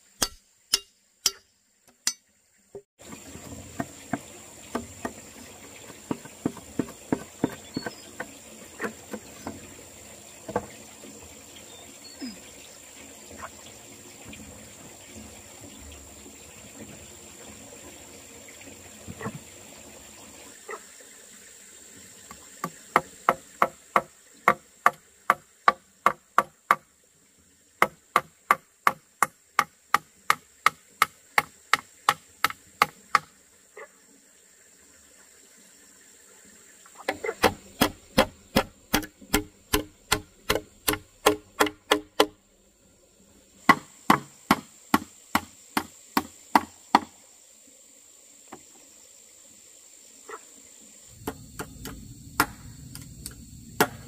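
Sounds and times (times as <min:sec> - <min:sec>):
chopping wood: 0:27.8 - 0:33.3, 0:37.0 - 0:42.4, 0:43.7 - 0:47.1, 0:51.2 - 0:52.6, 0:53.8 - 0:54.0.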